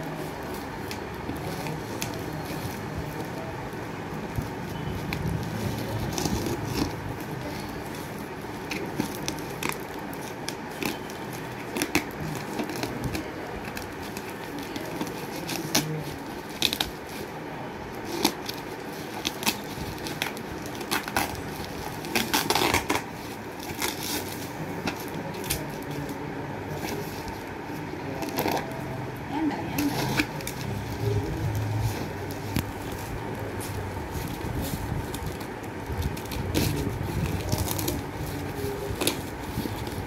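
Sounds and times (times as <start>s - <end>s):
plastic wrapping crinkling: 0.0s - 40.0s.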